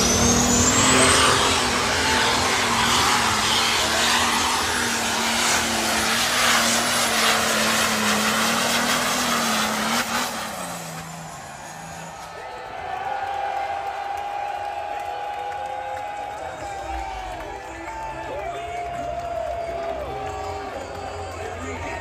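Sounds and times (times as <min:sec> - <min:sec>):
tractor engine revving high: 0:00.0 - 0:12.5.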